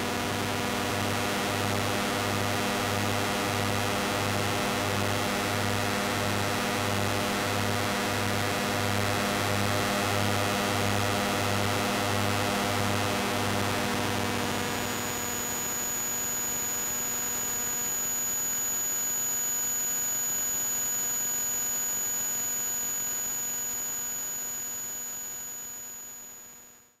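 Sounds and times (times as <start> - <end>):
electrical hum and buzz: 13.2 - 19.2
thin high whine: 14.3 - 26.4.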